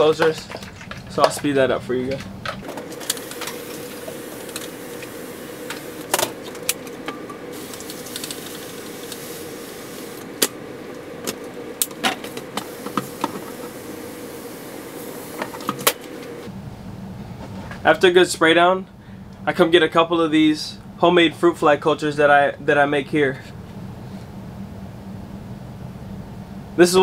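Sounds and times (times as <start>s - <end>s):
steady hum: 0.0s - 27.0s
pump spray bottle: 12.6s - 13.9s.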